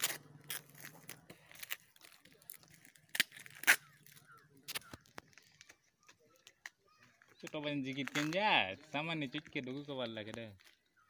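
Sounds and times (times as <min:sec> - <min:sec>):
packaging ripping: 0:00.0 - 0:05.8
wrapping crinkling: 0:00.0 - 0:08.7.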